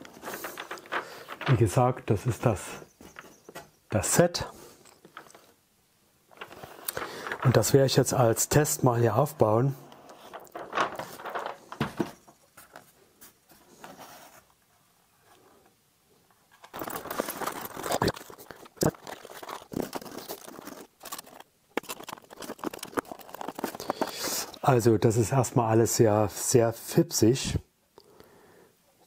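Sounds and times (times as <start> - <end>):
rustling and scraping: 0.0 - 5.6, 6.3 - 15.7, 16.4 - 24.9
small plastic parts clicking: 16.6 - 24.6.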